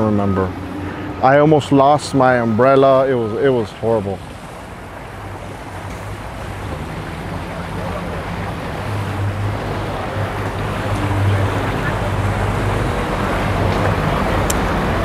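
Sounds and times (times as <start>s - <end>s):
outboard engine idling: 0.0s - 15.0s
water washing along hull: 0.0s - 15.0s.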